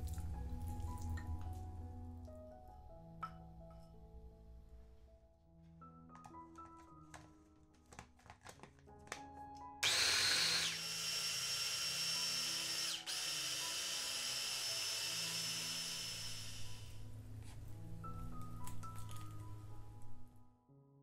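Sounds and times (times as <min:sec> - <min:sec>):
food chopper motor grinding: 0:09.8 - 0:16.9.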